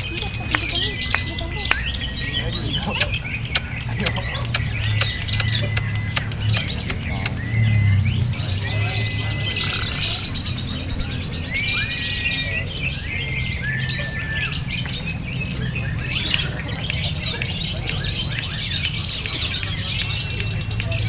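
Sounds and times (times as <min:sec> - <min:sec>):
lovebirds chattering: 0:00.0 - 0:21.0
whistle-like tones: 0:11.4 - 0:12.8.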